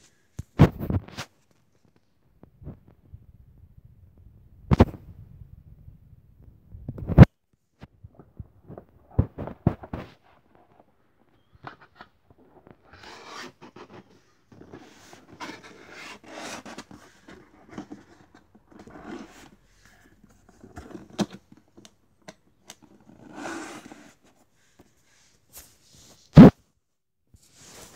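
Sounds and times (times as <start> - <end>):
hands scraping cardboard: 11.4 - 21.4, 22.7 - 24.9.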